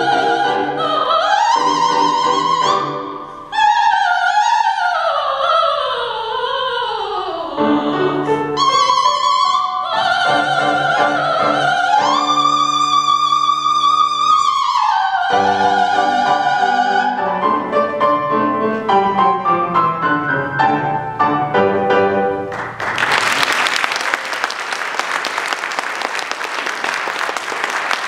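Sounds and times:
piano playing: 0.0 - 3.7, 7.5 - 22.8
soprano singing: 0.0 - 20.9
audience applause: 22.5 - 28.0.

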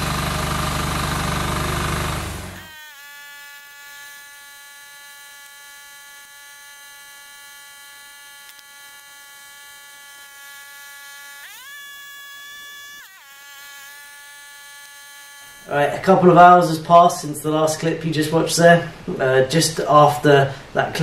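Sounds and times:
steady whine: 0.0 - 2.7.

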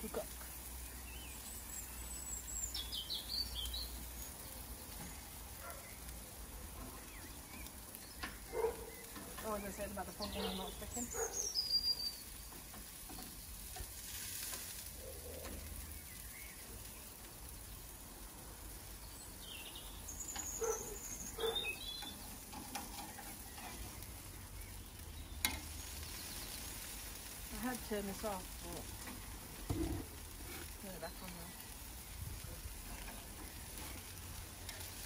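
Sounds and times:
birds chirping: 0.0 - 35.0
meat sizzling on a grill: 0.0 - 35.0.

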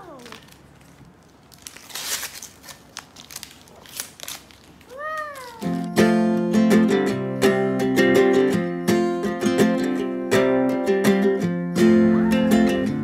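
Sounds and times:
paper crinkling and tearing: 0.0 - 6.0.

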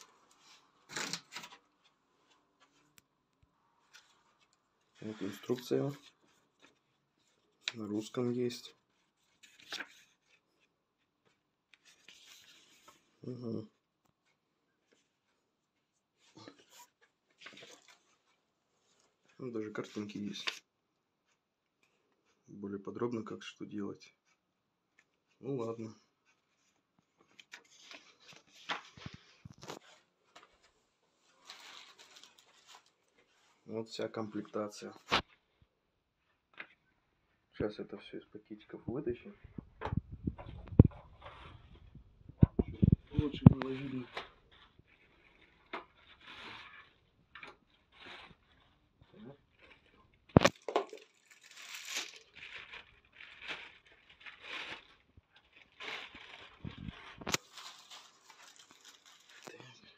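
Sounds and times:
packaging rustling and crinkling: 3.8 - 13.2, 16.1 - 20.7, 26.5 - 33.7, 42.6 - 59.8
plastic bags rustling: 31.3 - 33.4, 47.6 - 59.8.

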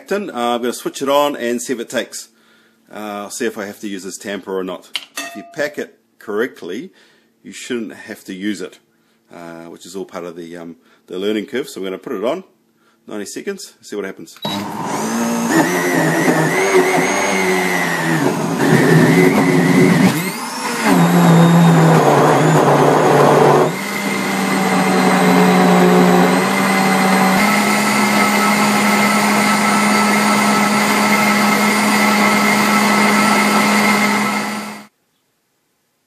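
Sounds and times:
blender motor running: 14.4 - 34.9.

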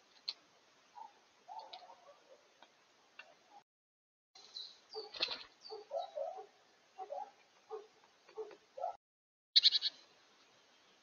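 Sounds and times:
faint bird chirps: 4.4 - 7.3, 9.6 - 11.0
short high bird calls: 9.6 - 10.0.

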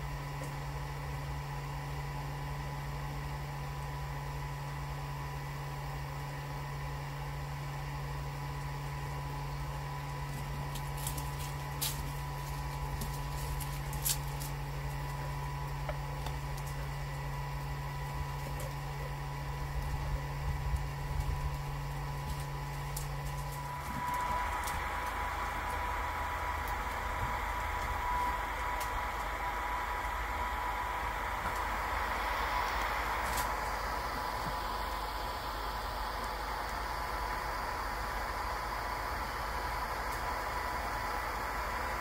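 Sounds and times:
small electric motor humming: 8.9 - 42.0.

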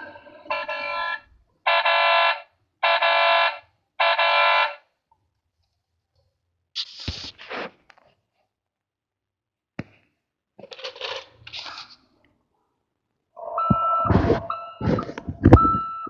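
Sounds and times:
buzzy toy horn tones: 0.0 - 2.4.

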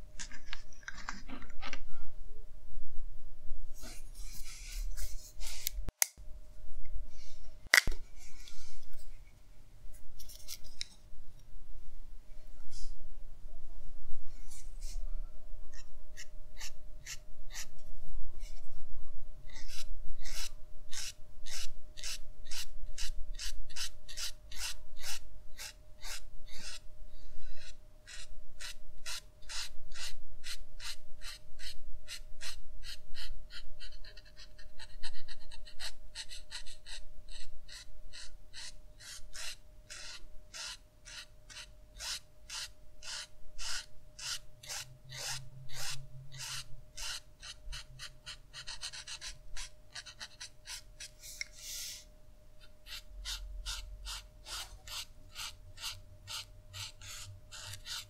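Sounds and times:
marker stroking on paper: 3.8 - 5.8, 19.5 - 26.8, 27.6 - 52.1, 52.8 - 58.0.

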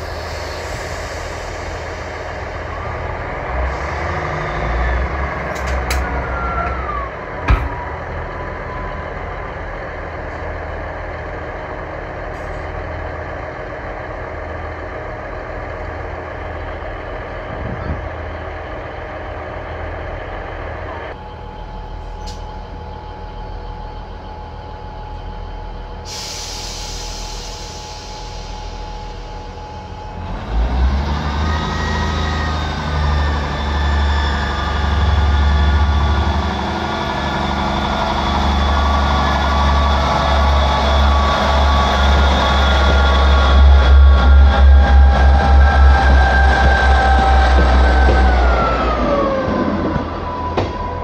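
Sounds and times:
diesel train engines idling: 0.0 - 51.0
falling squeal: 6.1 - 7.9, 31.2 - 49.4
sharp metallic clunk: 7.5 - 7.9.

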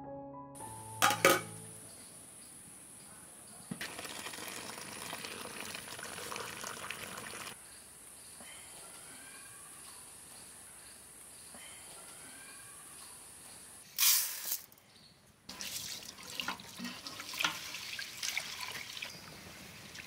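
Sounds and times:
hot liquid pouring into basin: 3.8 - 7.6, 15.5 - 20.0.

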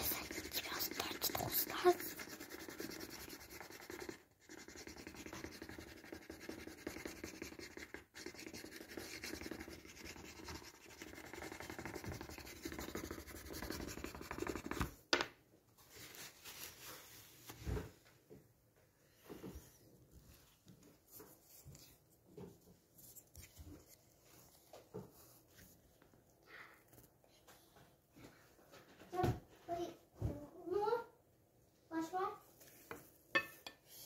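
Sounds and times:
sandpaper rubbing on wood: 1.8 - 14.8.

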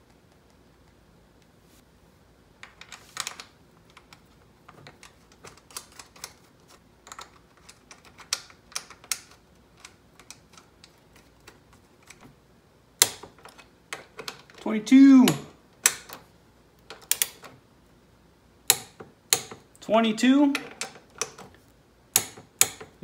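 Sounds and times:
hand tools and bolts clicking: 13.0 - 16.2, 16.8 - 17.5, 18.7 - 19.8, 20.4 - 23.0.

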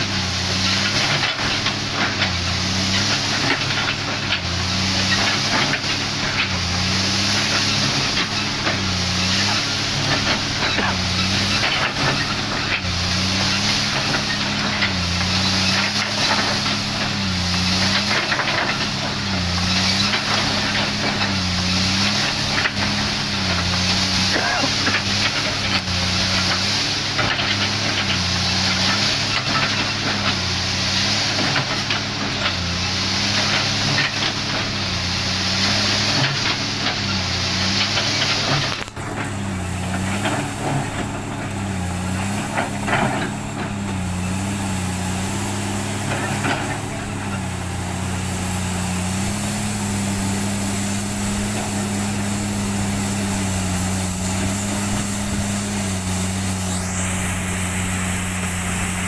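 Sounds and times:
excavator diesel engine under load: 0.0 - 59.0
high hiss: 39.6 - 59.0.

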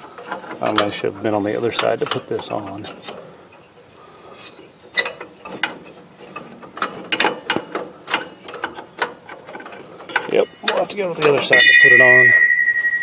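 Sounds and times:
metal brake parts clinking: 4.5 - 12.7.

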